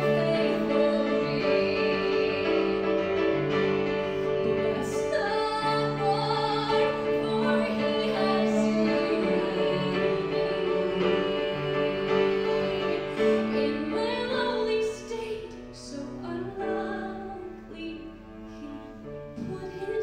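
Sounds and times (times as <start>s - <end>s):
woman singing: 0.0s - 3.6s, 4.4s - 20.0s
cello holding low notes: 0.0s - 14.0s
piano: 0.0s - 20.0s.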